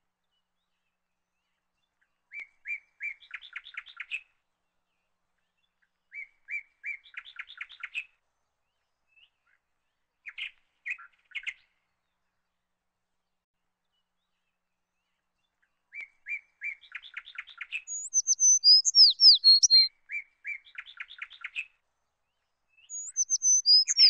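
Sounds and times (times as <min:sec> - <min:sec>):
sparrows chirping: 0:16.9 - 0:19.9, 0:22.8 - 0:24.0.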